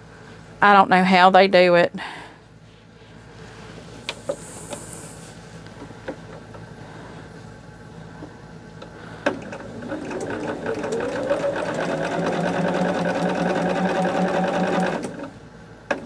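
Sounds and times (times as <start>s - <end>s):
sewing machine stitching: 9.3s - 15.4s.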